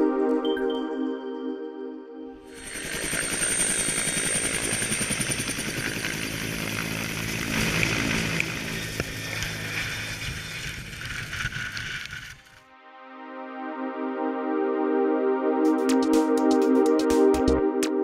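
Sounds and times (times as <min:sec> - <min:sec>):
helicopter rotor-blade chop: 0:02.4 - 0:12.6
high turbine whine: 0:02.4 - 0:12.6
rush of rotor downwash: 0:07.1 - 0:12.6.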